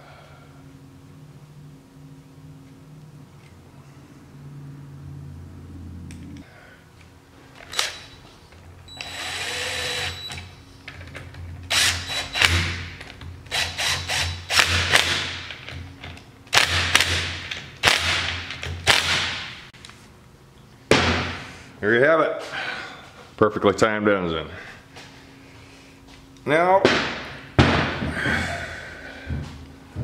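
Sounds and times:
power driver running bolts: 8.9s - 19.1s.

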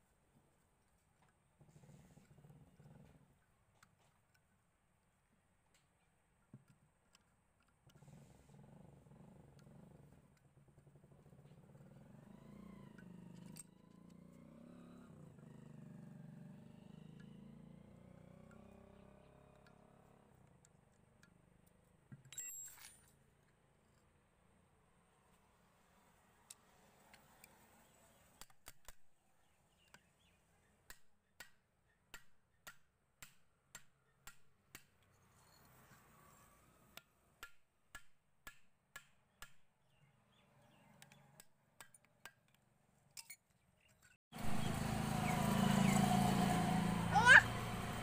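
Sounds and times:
faint engine drone: 44.4s - 48.0s.

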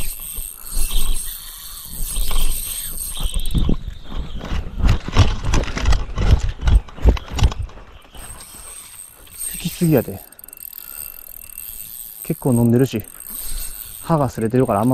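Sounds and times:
fishing line ratchet-like clicking: 0.0s - 3.8s, 7.3s - 14.9s.

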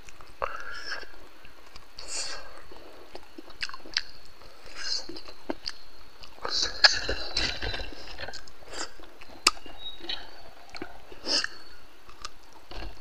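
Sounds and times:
sharp mouth clicks: 0.0s - 7.5s, 8.3s - 12.6s
man chewing food: 0.0s - 13.0s.

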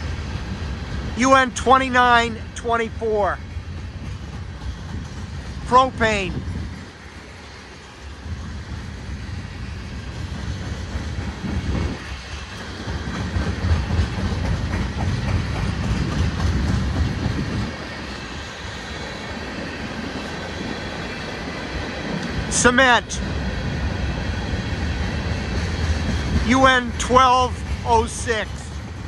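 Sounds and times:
freight train wheels rumbling: 0.0s - 29.0s
train wheel clicks: 0.3s - 9.1s, 10.0s - 22.9s.

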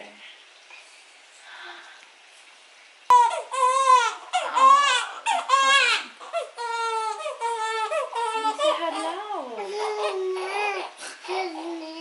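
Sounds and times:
newborn baby crying: 3.1s - 12.0s.

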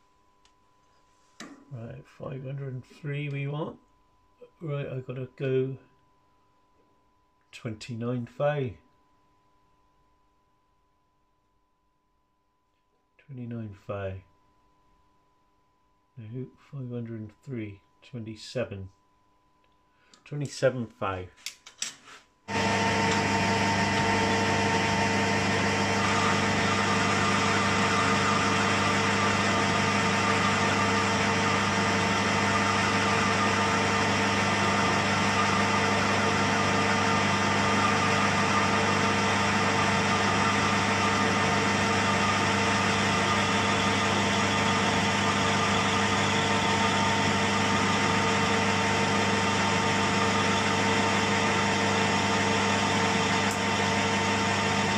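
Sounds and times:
lathe motor humming and whining: 22.5s - 54.9s.

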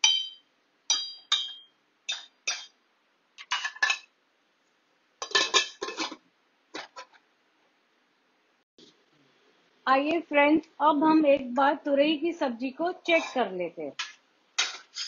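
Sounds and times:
metal lid clattering: 3.4s - 4.1s, 5.2s - 6.2s.

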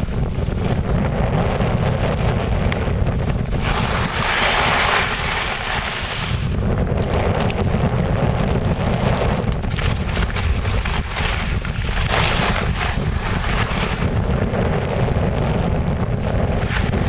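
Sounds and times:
wind buffeting microphone: 0.0s - 17.0s
skis hissing on snow: 3.6s - 6.6s, 10.3s - 14.3s.

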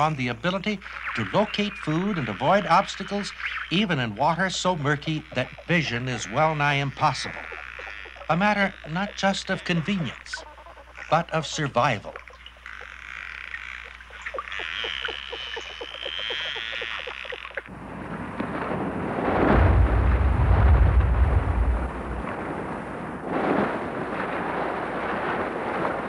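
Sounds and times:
echolocation clicks: 0.7s - 17.7s
dolphin whistle: 0.8s - 4.0s, 7.0s - 17.6s
rushing noise with deep rumble: 17.7s - 26.0s.

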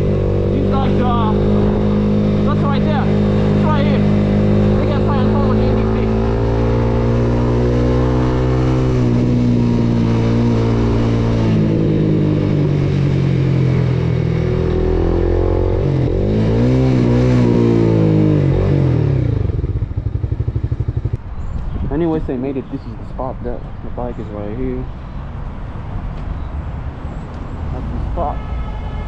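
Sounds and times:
motorcycle engine running: 0.0s - 21.5s.

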